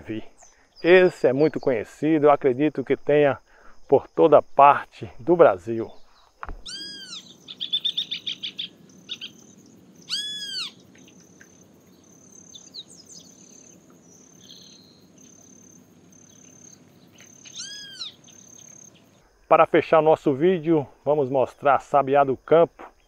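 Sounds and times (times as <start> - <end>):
bird rasping calls: 6.6 - 11.6, 12.2 - 19.2
bird fast chattering: 6.7 - 11.2, 12.2 - 19.1.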